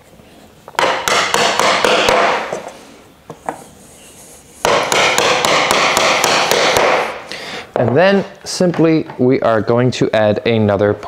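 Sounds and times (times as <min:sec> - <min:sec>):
hammer knocking wood: 0:00.8 - 0:02.5, 0:04.6 - 0:07.2.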